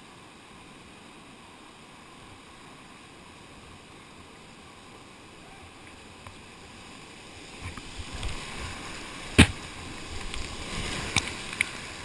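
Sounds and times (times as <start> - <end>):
whitewater rushing: 0.0 - 12.0
sharp hits on kayak: 9.3 - 9.7.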